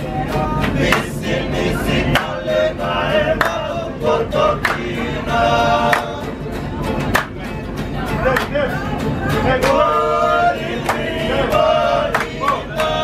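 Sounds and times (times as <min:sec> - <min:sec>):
men singing together: 0:00.0 - 0:06.5, 0:09.3 - 0:13.0
acoustic guitar: 0:00.0 - 0:13.0
hand claps: 0:00.6 - 0:01.2, 0:02.1 - 0:02.5, 0:03.4 - 0:03.7, 0:04.6 - 0:05.0, 0:05.9 - 0:06.3, 0:07.0 - 0:07.5, 0:08.3 - 0:08.6, 0:09.6 - 0:09.8, 0:10.8 - 0:11.2, 0:12.1 - 0:13.0.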